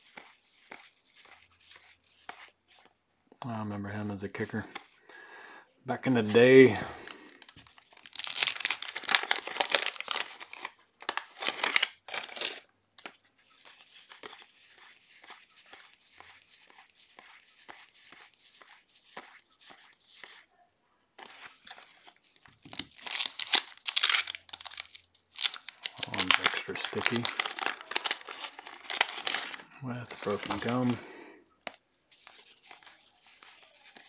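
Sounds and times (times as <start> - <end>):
wax wrappers crinkling and tearing: 6.1 - 16.5, 21.2 - 34.0.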